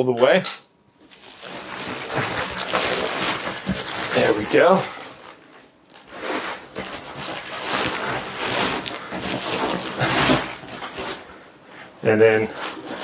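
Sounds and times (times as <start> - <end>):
plastic wrapping crinkling: 1.0 - 13.0.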